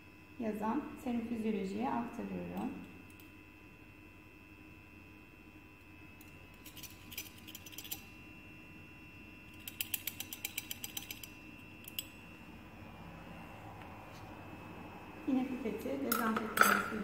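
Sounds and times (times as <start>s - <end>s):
pipette filler thumbwheel clicking: 9.6s - 11.3s.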